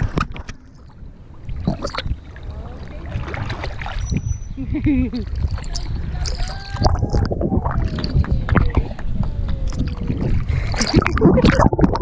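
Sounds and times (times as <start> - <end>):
churning water rumble underwater: 0.0 - 12.0.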